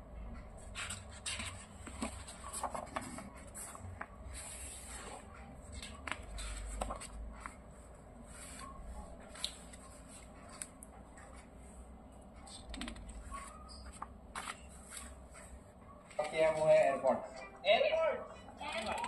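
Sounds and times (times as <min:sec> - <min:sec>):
paper rustling: 0:00.7 - 0:11.5, 0:13.0 - 0:16.8
light paper crackles and taps: 0:00.8 - 0:04.2.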